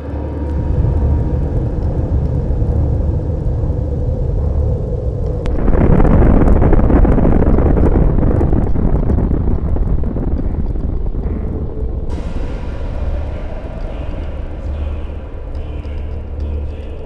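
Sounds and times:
deep explosion rumble: 0.0s - 17.0s
crackling: 5.0s - 17.0s.

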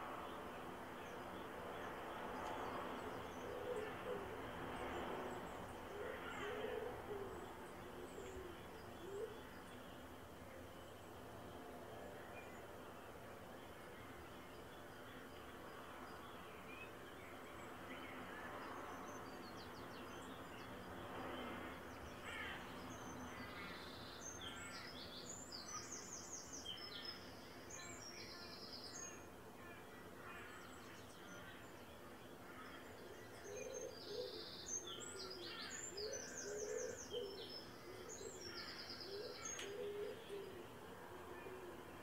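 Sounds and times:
faint background noise: 0.0s - 42.0s
low repeated bird calls: 22.0s - 42.0s.

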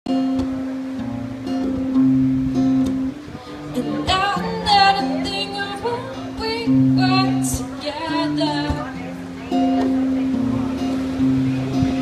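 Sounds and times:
acoustic guitar chords: 0.1s - 12.0s
woman singing: 3.7s - 8.9s.

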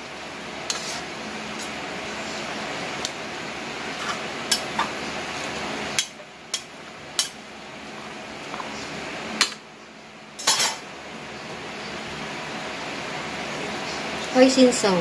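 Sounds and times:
spatula scraping noodles: 0.6s - 2.5s.

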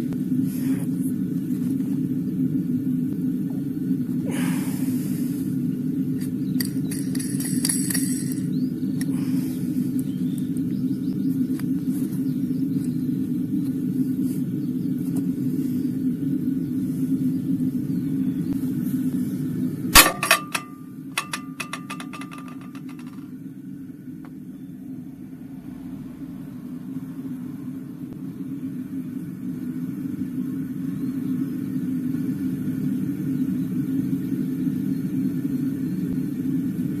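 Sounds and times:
steady low rumble: 0.0s - 37.0s
metal clanging in cast-iron pan: 20.0s - 23.2s
metal rattling in pan: 20.0s - 23.2s.

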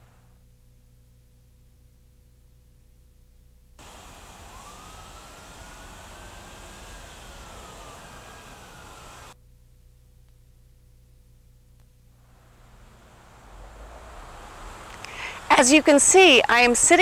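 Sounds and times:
faint steady whine: 0.0s - 17.0s
tape hiss: 0.0s - 17.0s
low hum: 3.4s - 17.0s
faint rising and falling tone: 3.8s - 9.4s, 12.2s - 17.0s.

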